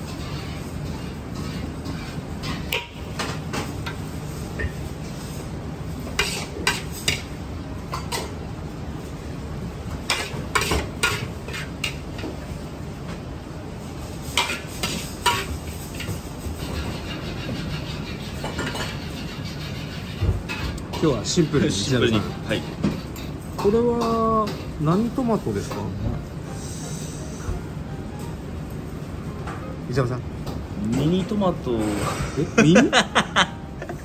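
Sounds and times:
utensils and dishes clinking: 14.4s - 24.8s.

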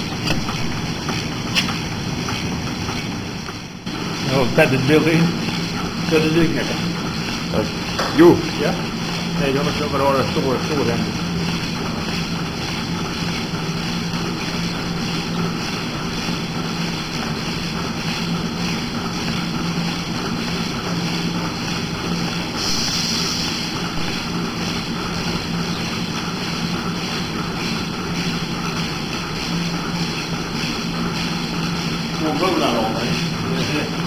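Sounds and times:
milking machinery drone: 0.0s - 34.0s
short hiss: 22.6s - 23.7s.

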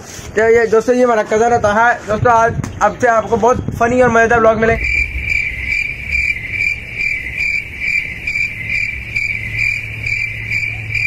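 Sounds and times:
low hum: 4.7s - 11.0s
crickets chirping: 4.8s - 11.0s.

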